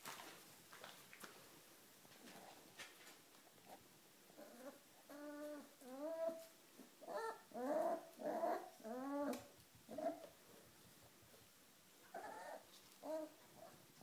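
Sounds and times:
puppies whining and yelping: 0:04.4 - 0:10.3, 0:12.1 - 0:13.7.

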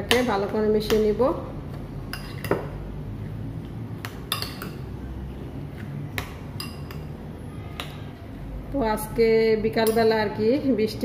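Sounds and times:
spoon clinking in ceramic bowl: 0:02.1 - 0:02.7, 0:04.3 - 0:04.8, 0:06.6 - 0:07.1, 0:09.8 - 0:10.2.

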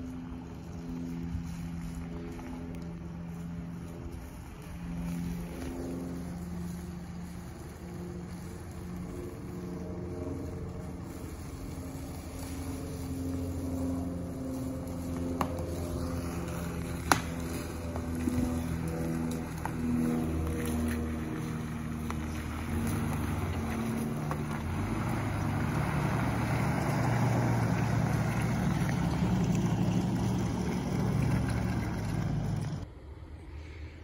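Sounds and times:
car engine running at low speed: 0:00.0 - 0:34.0
sharp cracks: 0:17.0 - 0:17.5.

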